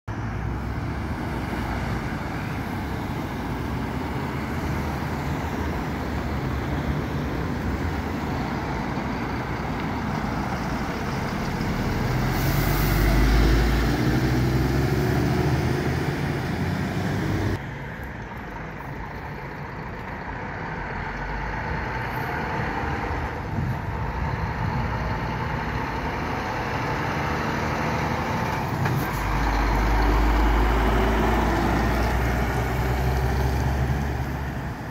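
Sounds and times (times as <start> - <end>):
road traffic: 0.0 - 34.9
semi-trailer truck engine: 0.1 - 34.9
box truck passing: 10.2 - 17.6.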